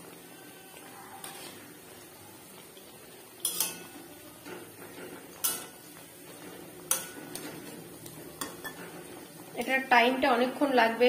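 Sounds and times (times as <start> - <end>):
oil sizzling: 0.0 - 11.0
metal spatula clanking on pan: 3.4 - 7.7, 8.3 - 9.1.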